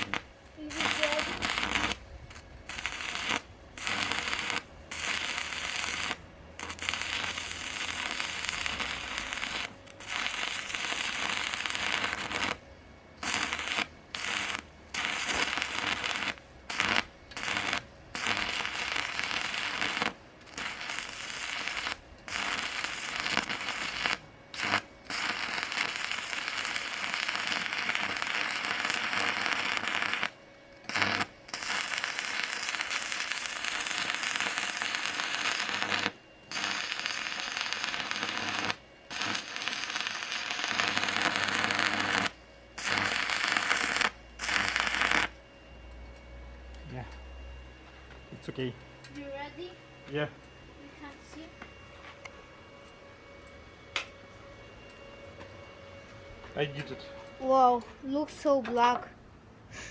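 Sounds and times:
welding arc crackling: 0.0 - 45.4.

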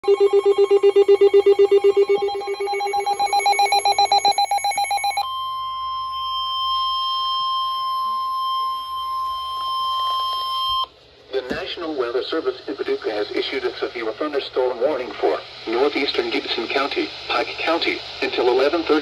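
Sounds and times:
pulsing alarm beep: 0.0 - 10.9
steady warning tone: 0.0 - 11.5.

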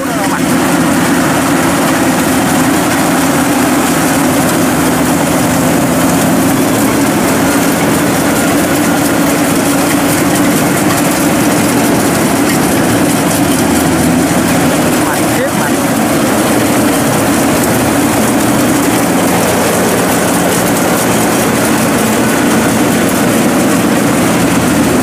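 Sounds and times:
combine harvester droning: 0.0 - 25.0.

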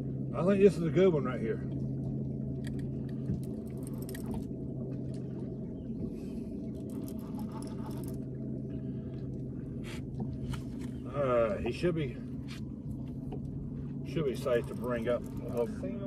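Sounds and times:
steady low hum: 0.0 - 16.0
reel clicks: 2.6 - 4.5, 6.7 - 8.3, 14.3 - 15.8
fishing reel cranking: 6.9 - 8.2, 14.4 - 15.7.

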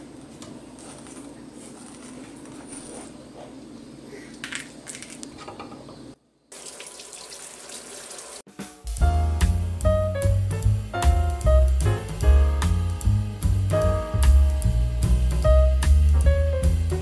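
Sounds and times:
tap water running: 6.5 - 8.5
background music with a beat: 8.5 - 17.0.

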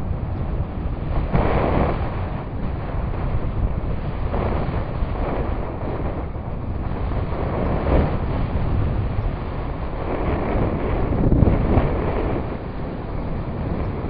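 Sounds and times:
wind rumbling over microphone: 0.0 - 14.0.

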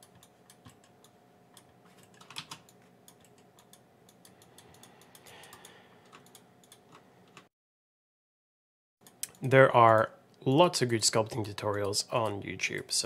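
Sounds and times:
computer keyboard and mouse clicking: 0.0 - 7.5, 9.0 - 10.1, 11.2 - 12.4.

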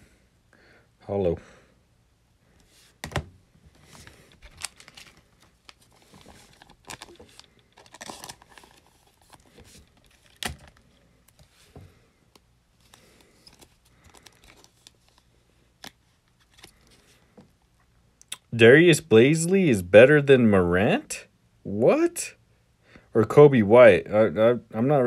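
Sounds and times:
cards rustling and flicking: 2.6 - 17.2.

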